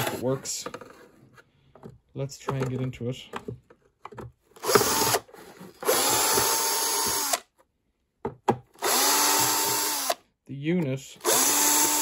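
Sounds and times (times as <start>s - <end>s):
drill bit clicking in screws: 4.6s - 5.2s, 5.8s - 7.4s, 8.8s - 10.2s, 11.2s - 12.0s
power drill motor whine: 4.6s - 7.4s, 8.8s - 10.2s, 11.2s - 12.0s.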